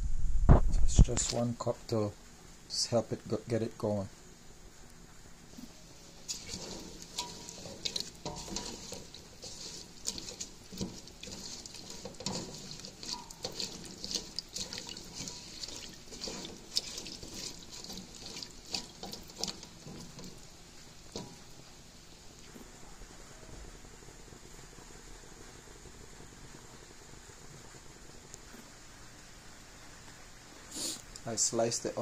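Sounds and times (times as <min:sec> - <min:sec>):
liquid sloshing: 0:06.2 - 0:21.6
spoon scraping a pot: 0:06.3 - 0:20.5.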